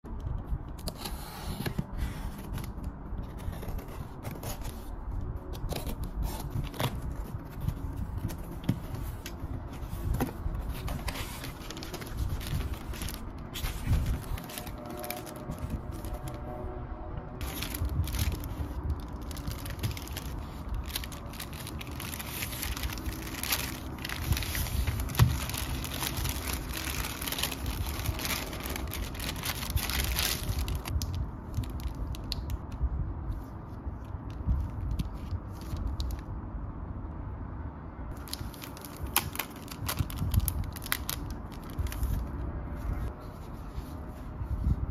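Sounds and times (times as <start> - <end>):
paper packaging rustling and tearing: 0.8 - 16.5, 17.4 - 32.6, 38.1 - 42.3.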